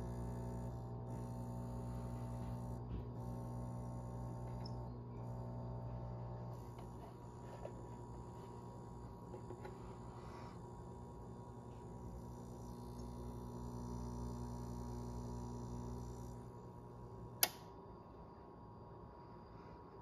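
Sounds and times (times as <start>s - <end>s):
espresso machine pump humming: 0.0s - 17.6s
light click: 17.4s - 17.7s.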